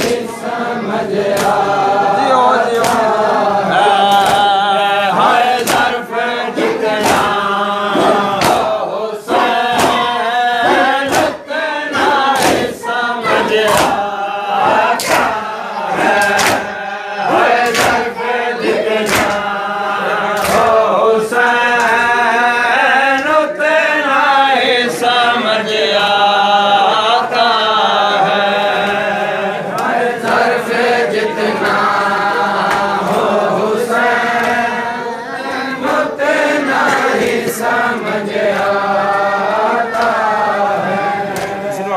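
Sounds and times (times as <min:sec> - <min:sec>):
mourners chanting in unison: 0:00.0 - 0:41.9
hand slaps on chest: 0:01.3 - 0:01.7, 0:02.8 - 0:03.2, 0:04.1 - 0:04.5, 0:05.5 - 0:06.0, 0:07.0 - 0:07.4, 0:08.0 - 0:08.8, 0:09.6 - 0:11.4, 0:12.0 - 0:12.8, 0:13.4 - 0:14.1, 0:14.7 - 0:15.4, 0:16.1 - 0:16.7, 0:17.6 - 0:18.1, 0:19.0 - 0:19.5, 0:20.3 - 0:20.8, 0:32.6 - 0:33.3, 0:41.3 - 0:41.6.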